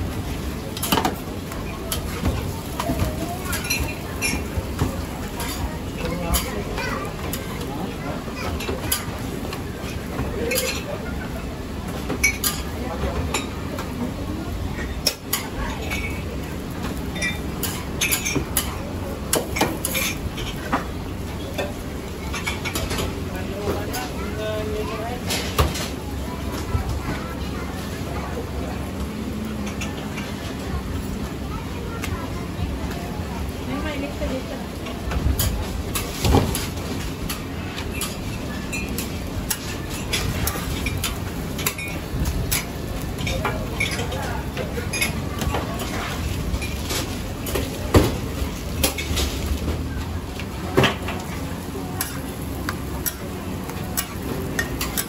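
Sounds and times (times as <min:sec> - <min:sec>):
metal utensils clinking on griddle: 0:00.8 - 0:11.1, 0:12.0 - 0:13.9, 0:14.7 - 0:20.8, 0:21.4 - 0:23.2, 0:34.8 - 0:47.8, 0:48.5 - 0:49.7, 0:50.7 - 0:55.0.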